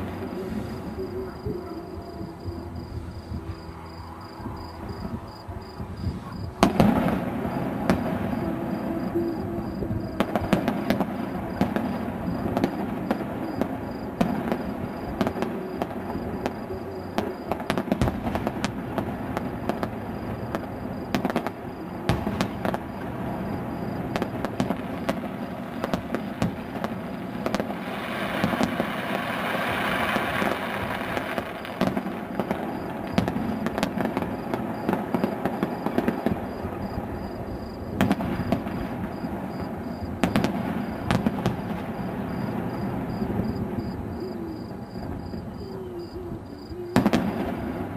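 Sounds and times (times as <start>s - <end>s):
continuous rumble: 0.0s - 27.9s
firework shells bursting: 17.4s - 37.0s.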